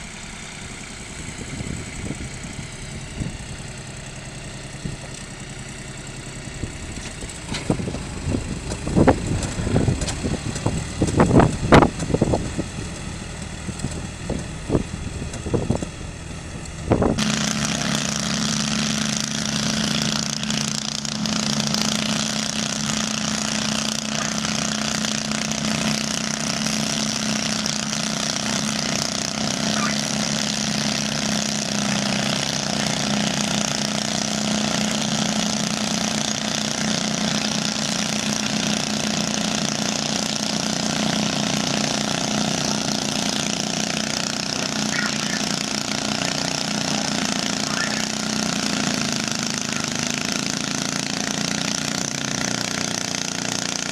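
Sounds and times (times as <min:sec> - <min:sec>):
garden tractor engine under load: 0:00.0 - 0:53.9
tractor engine with rotary tiller: 0:00.0 - 0:53.9.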